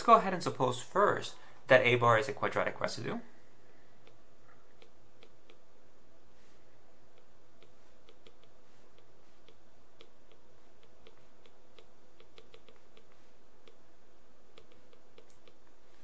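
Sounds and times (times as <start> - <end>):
low hum: 0.0 - 16.0
stylus tapping on tablet screen: 4.0 - 5.7, 7.1 - 13.9, 14.5 - 16.0.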